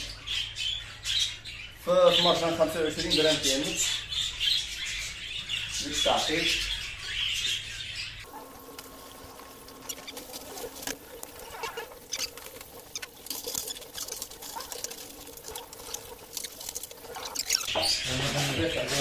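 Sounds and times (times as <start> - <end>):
light clicks and scratching: 8.6 - 17.7
budgie chirps: 9.6 - 18.0.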